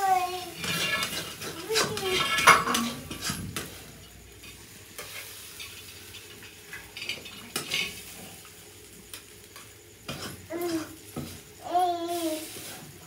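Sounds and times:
faint oil sizzle: 0.0s - 13.0s
metal ladle scraping wok: 0.4s - 6.4s.

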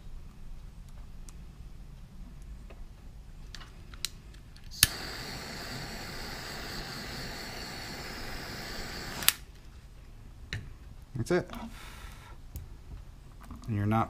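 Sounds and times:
torch ignition click: 4.0s - 9.5s
torch flame hissing: 4.7s - 9.5s.

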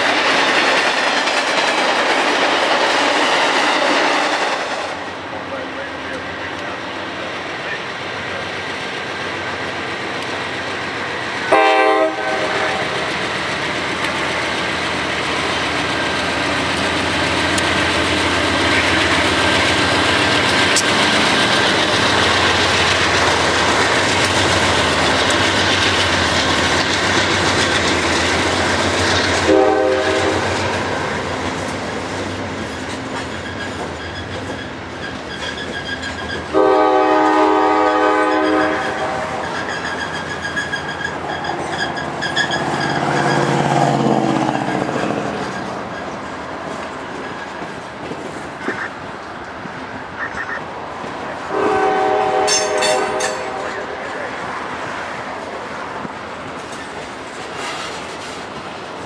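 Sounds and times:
freight train rolling over rails: 0.0s - 59.0s
locomotive air horn blasts: 11.5s - 13.0s, 29.4s - 30.5s, 36.5s - 39.5s, 51.5s - 54.0s.

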